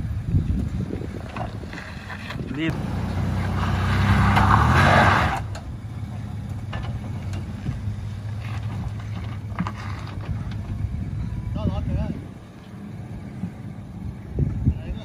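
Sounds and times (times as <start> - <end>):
truck engine under load: 0.0 - 15.0.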